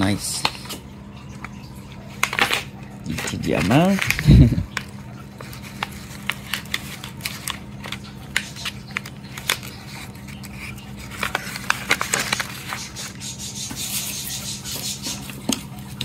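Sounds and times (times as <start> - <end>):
packaging rustling: 1.4 - 14.1.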